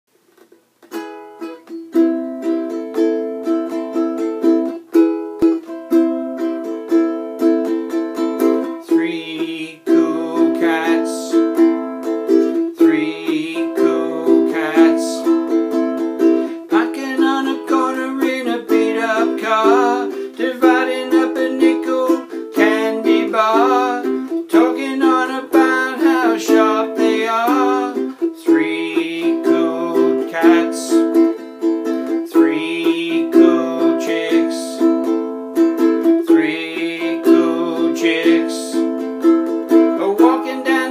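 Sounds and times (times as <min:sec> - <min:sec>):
ukulele strumming: 0:00.3 - 0:40.9
man singing: 0:08.2 - 0:35.2, 0:36.0 - 0:39.1, 0:39.7 - 0:40.9.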